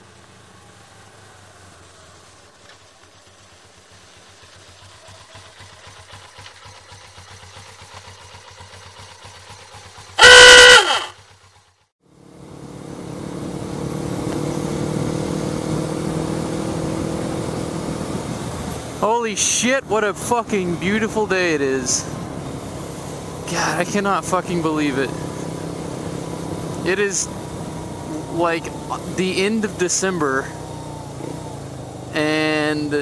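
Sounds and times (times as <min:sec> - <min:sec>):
motorcycle approaching: 0:00.0 - 0:10.2, 0:10.8 - 0:33.0.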